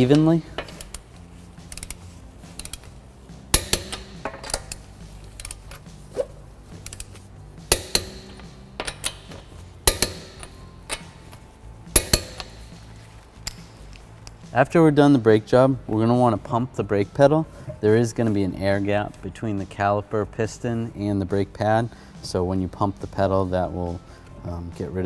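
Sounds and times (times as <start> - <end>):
torque wrench clicking: 0.1 - 2.9, 3.5 - 5.9, 6.8 - 12.6.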